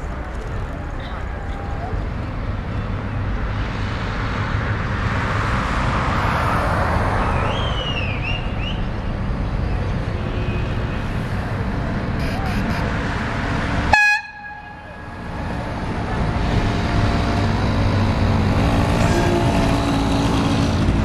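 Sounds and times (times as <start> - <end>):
passing cars hum: 0.0 - 21.0.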